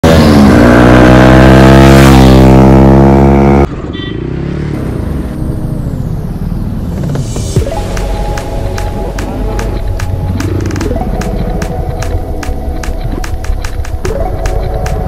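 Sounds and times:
loud motorcycle exhaust note: 0.0 - 6.4
motorcycle engine and road noise: 0.0 - 15.0.

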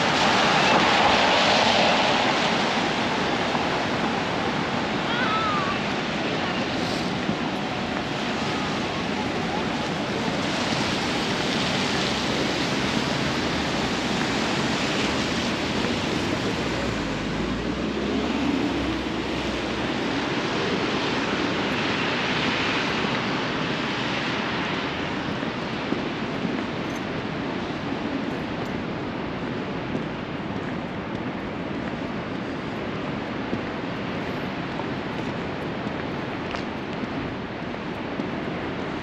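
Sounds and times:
tyres hissing on wet pavement: 0.0 - 29.2.

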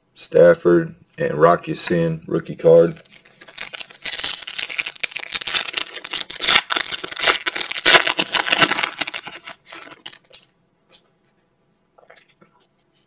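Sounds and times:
foil wrapper crinkling and tearing: 3.0 - 10.4.

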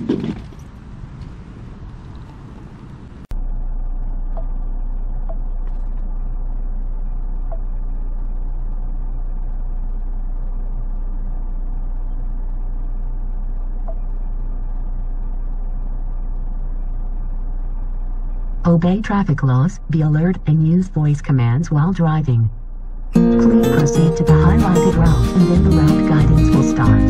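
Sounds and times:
car engine idling: 0.5 - 27.0.

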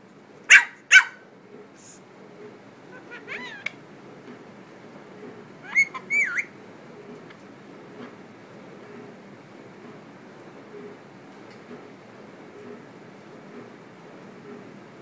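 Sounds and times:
puppy yapping barks: 0.5 - 1.2
parakeet whistled chirps: 5.6 - 6.5.

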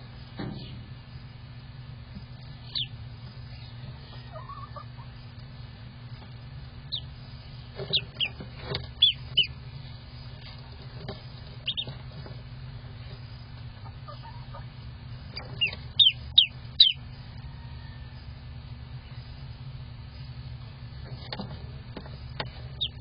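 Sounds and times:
low steady hum: 0.0 - 23.0
duckling peeping: 2.2 - 5.4, 6.1 - 12.2, 12.9 - 18.3, 22.3 - 23.0.

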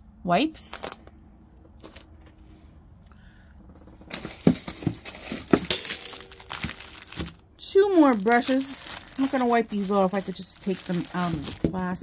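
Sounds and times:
wipe pack crinkling: 4.1 - 12.0.

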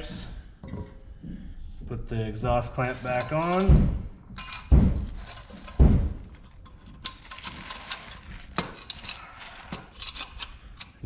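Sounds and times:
dull thumps: 3.6 - 5.2, 5.8 - 6.2
small metal clicks: 4.4 - 11.0
plastic wrap rustling: 4.9 - 10.3.

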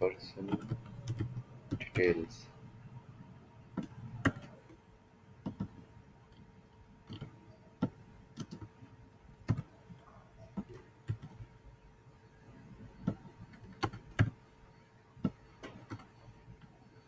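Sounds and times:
keyboard and mouse clicks: 0.4 - 2.1, 3.8 - 4.8, 5.4 - 8.7, 9.5 - 9.7, 13.0 - 14.4, 15.2 - 16.8.

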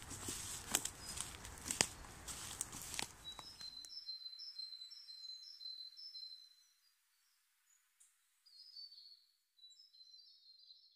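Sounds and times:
footsteps on woodland floor: 0.0 - 3.8
small birds chirping: 0.6 - 10.9.

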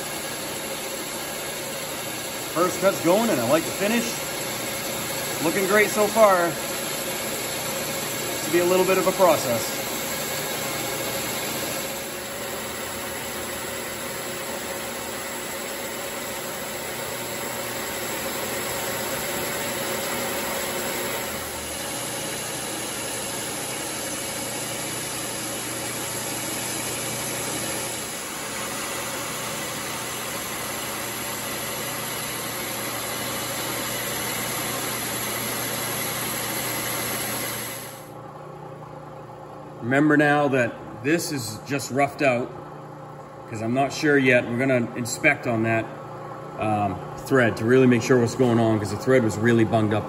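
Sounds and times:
metal lathe motor hum: 0.0 - 38.2.

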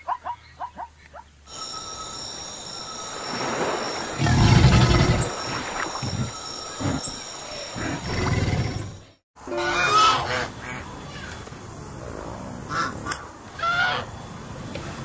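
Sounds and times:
low dinosaur growl: 7.8 - 9.0.

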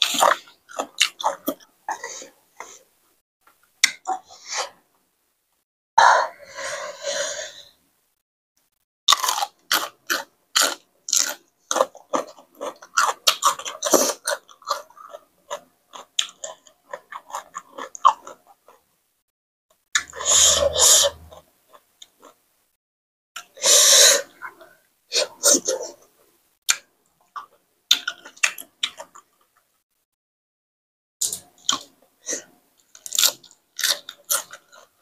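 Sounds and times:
person chewing crunchy food: 0.0 - 2.8, 9.1 - 18.9, 20.0 - 22.4, 26.7 - 29.6, 31.2 - 35.0.

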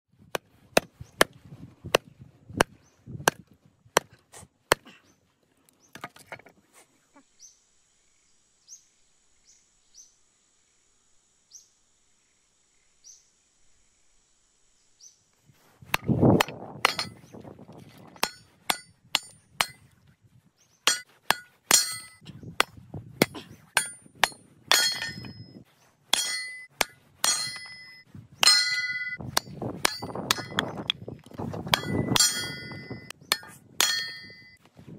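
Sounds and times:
split wood pieces dropping: 5.9 - 6.5.

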